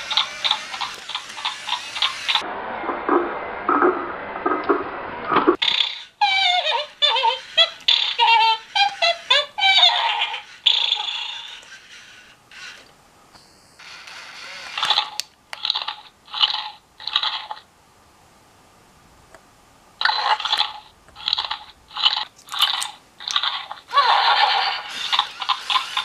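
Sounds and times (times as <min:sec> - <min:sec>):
toy speaker crunchy munching: 0:00.0 - 0:02.4, 0:13.8 - 0:17.7, 0:20.0 - 0:26.0.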